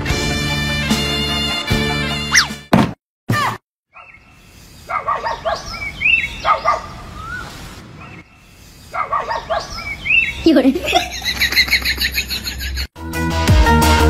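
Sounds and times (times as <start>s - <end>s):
bird-like chirping calls: 3.9s - 10.6s.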